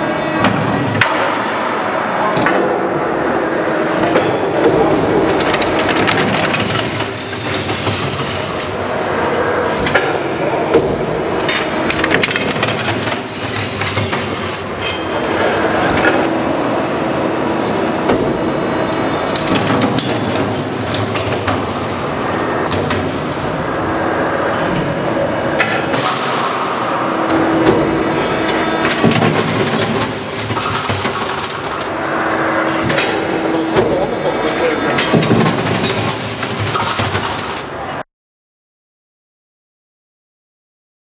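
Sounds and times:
hydraulic hum: 0:00.0 - 0:38.0
metallic clanks and clatter: 0:11.5 - 0:16.3.

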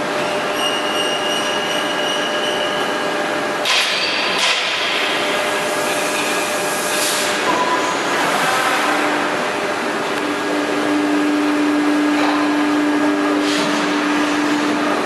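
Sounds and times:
machine mechanical drone: 0:07.4 - 0:15.0.

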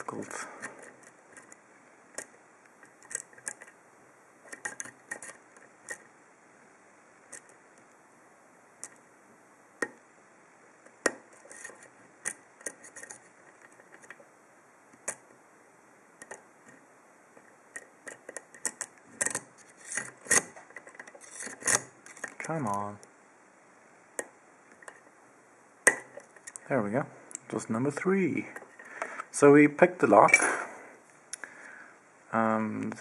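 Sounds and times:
small metallic clicks and scratches: 0:00.0 - 0:03.8, 0:04.4 - 0:06.1, 0:07.3 - 0:08.0, 0:08.8 - 0:09.1, 0:10.8 - 0:14.3, 0:14.9 - 0:15.3, 0:16.2 - 0:23.1, 0:24.2 - 0:25.1, 0:25.8 - 0:26.7.

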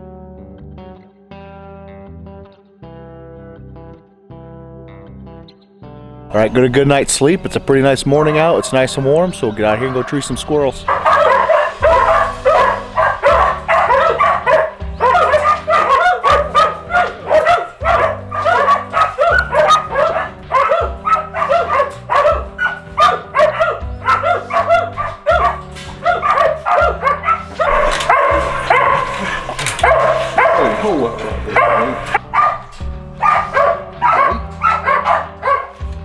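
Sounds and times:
background music: 0:00.0 - 0:36.0
dogs barking and yipping: 0:08.1 - 0:36.0.

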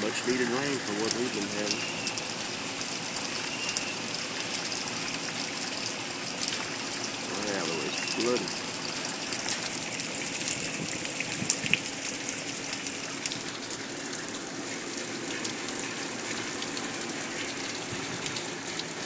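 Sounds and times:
heavy rain falling: 0:00.0 - 0:19.0.

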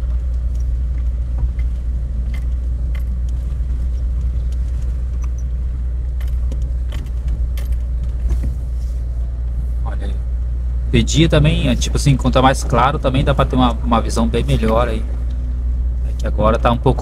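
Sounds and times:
light clicks and rattles: 0:00.0 - 0:09.6
car driving on dirt road: 0:00.0 - 0:17.0.

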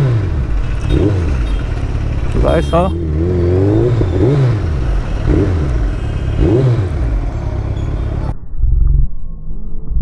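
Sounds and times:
motorcycle engine throttle blips: 0:00.4 - 0:08.3.

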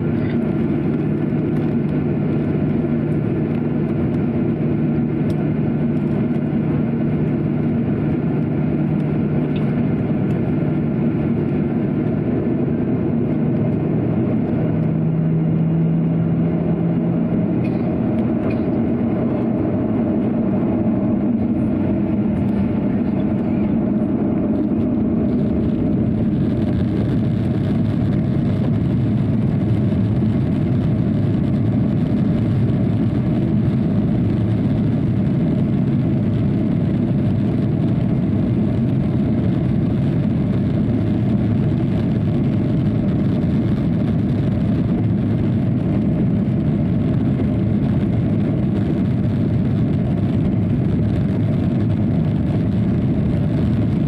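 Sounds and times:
airplane cabin engine hum: 0:00.0 - 0:54.0.

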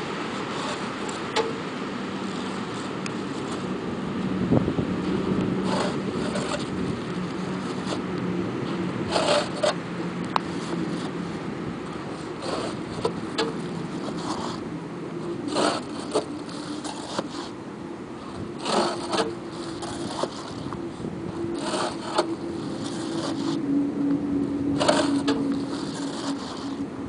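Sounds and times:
bricks scraping off truck bed: 0:00.0 - 0:01.6, 0:05.6 - 0:08.0, 0:08.8 - 0:11.2, 0:11.9 - 0:14.7, 0:15.3 - 0:17.6, 0:18.2 - 0:23.6, 0:24.8 - 0:26.8.

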